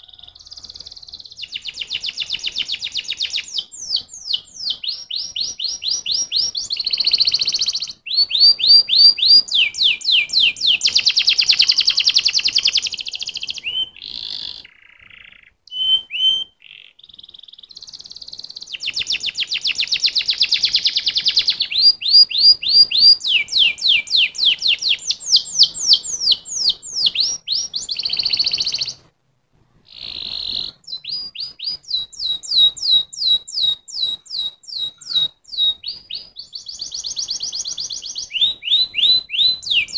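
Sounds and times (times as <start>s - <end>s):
canary singing: 0.0s - 29.1s, 29.9s - 39.9s.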